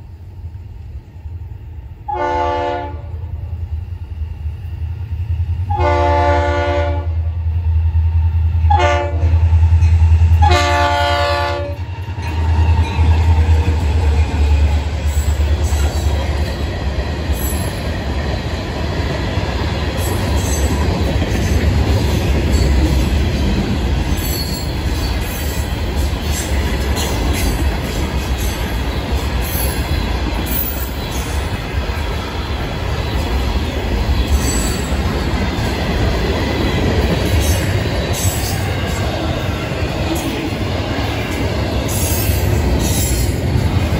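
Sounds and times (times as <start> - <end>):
diesel locomotives rumbling: 0.0 - 43.9
train horn blasts: 2.1 - 3.2, 5.7 - 7.3, 8.7 - 9.4, 10.4 - 11.8
wheel-and-rail noise: 11.6 - 43.9.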